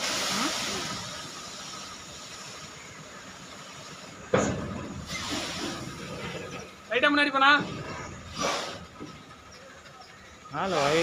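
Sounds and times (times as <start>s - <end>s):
loud thump: 4.3s - 5.1s.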